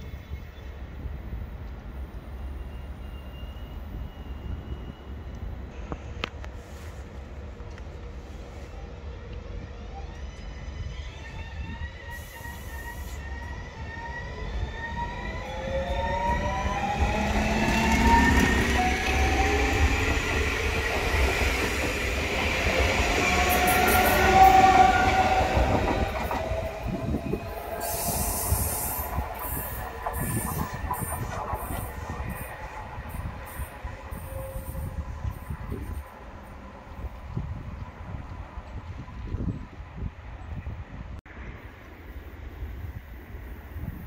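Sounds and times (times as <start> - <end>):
train wheels rumbling on rail: 0.0 - 44.0
wheels or brakes squealing: 2.5 - 5.3, 9.9 - 20.1.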